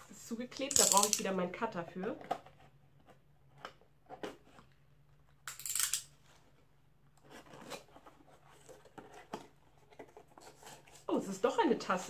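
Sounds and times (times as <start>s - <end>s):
cardboard rustling: 6.2s - 11.4s.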